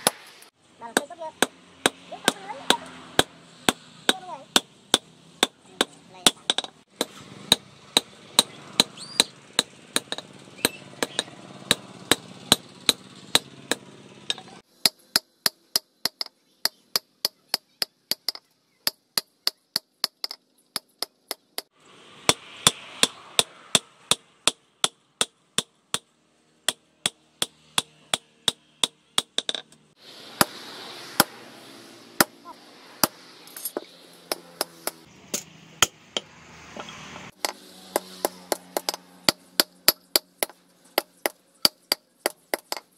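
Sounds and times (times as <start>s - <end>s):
hammer striking steel on anvil: 1.0s - 21.7s, 22.3s - 26.1s, 26.7s - 29.8s, 33.0s - 42.9s.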